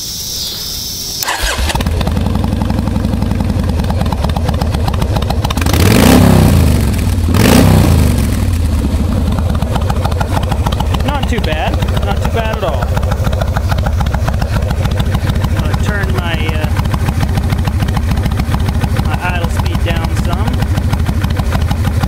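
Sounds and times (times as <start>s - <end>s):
starter motor whirring: 0.4s - 2.4s, 9.5s - 21.8s
motorcycle engine idling and revving: 1.2s - 22.0s.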